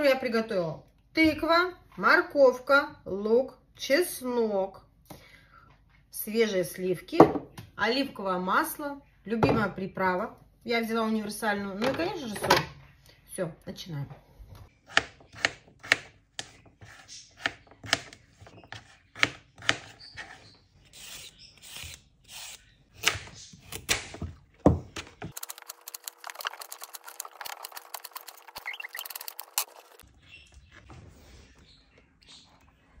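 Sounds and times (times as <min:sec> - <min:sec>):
vegetable peeler scraping: 0:19.6 - 0:23.9, 0:25.3 - 0:30.0
fast chopping clicks: 0:25.0 - 0:30.0.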